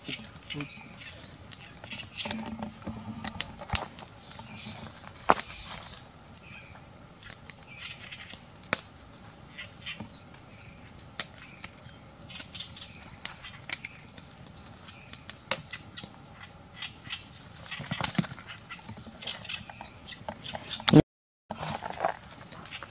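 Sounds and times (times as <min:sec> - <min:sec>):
birds chirping: 0:00.0 - 0:08.7.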